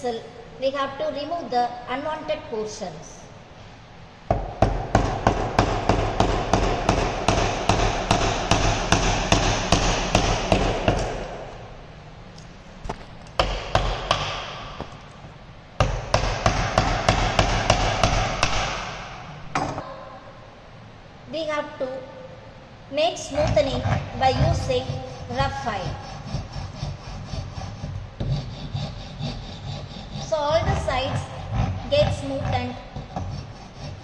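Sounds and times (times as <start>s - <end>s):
mallet striking chisel into wood: 4.3s - 11.4s, 13.4s - 15.0s, 15.8s - 19.0s.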